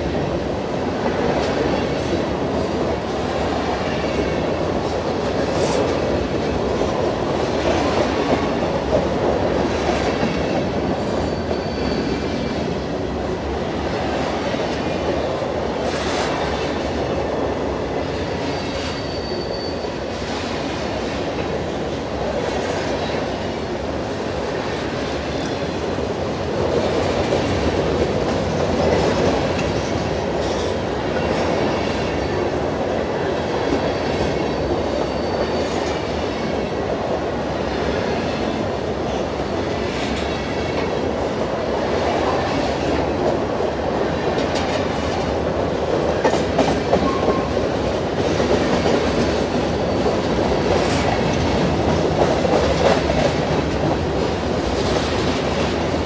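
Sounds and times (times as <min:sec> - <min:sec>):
freight train wheels clattering: 0:00.0 - 0:56.0
faint wheel squeals: 0:11.1 - 0:12.6, 0:18.5 - 0:20.0, 0:35.0 - 0:36.0.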